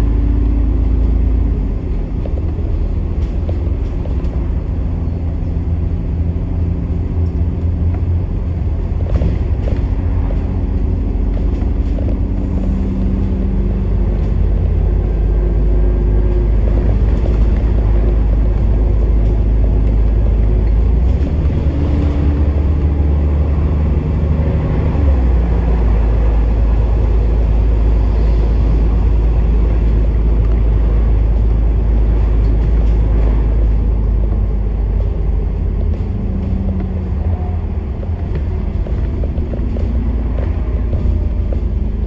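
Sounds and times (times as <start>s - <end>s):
bus engine and road rumble: 0.0s - 42.0s.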